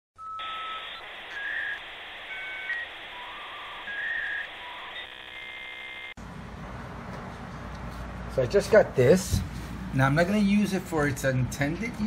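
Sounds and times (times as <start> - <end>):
electronic beep-like tones: 0.2 - 6.1
buzzy electronic tone: 0.4 - 6.2.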